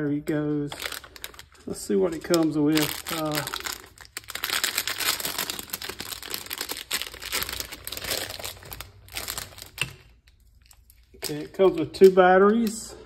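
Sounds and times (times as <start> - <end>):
plastic packaging crinkling: 0.4 - 13.0.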